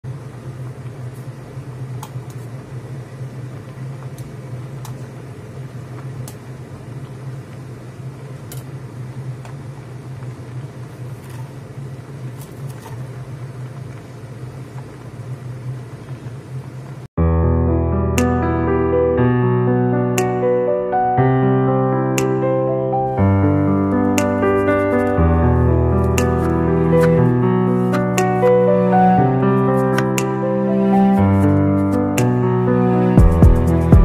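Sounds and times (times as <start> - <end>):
low hum: 22.9 - 34.0.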